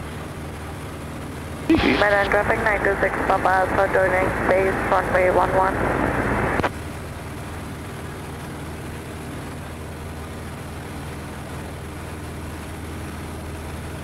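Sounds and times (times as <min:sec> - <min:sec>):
light aircraft engine drone: 0:00.0 - 0:14.0
radio call: 0:01.7 - 0:06.7
radio click: 0:01.7 - 0:06.7.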